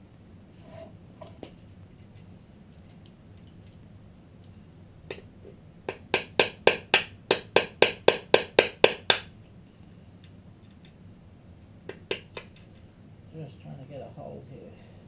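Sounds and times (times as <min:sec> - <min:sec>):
sharp taps on metal: 0:05.9 - 0:09.3, 0:11.9 - 0:12.7.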